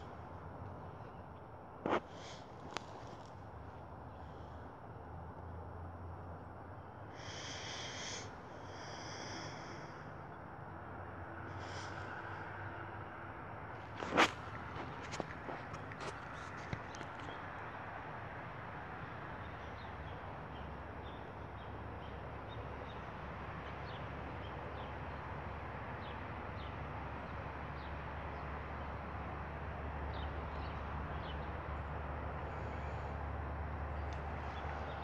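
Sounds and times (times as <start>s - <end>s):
outdoor rumble and hiss: 0.0s - 35.0s
small birds chirping: 13.8s - 18.0s, 19.0s - 25.2s.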